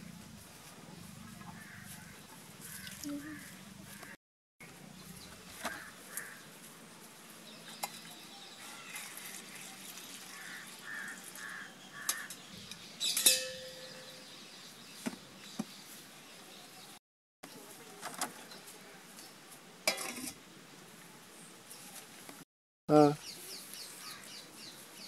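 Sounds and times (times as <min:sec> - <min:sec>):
birds calling: 0:01.0 - 0:06.6, 0:07.5 - 0:17.0, 0:23.0 - 0:25.0.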